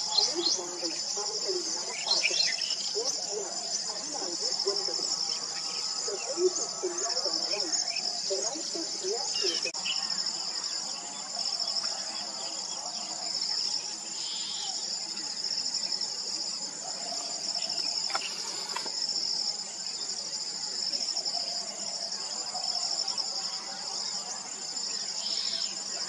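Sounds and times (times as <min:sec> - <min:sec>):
faint lower insect calls: 0:00.0 - 0:26.0
insect chorus trilling: 0:00.0 - 0:26.0.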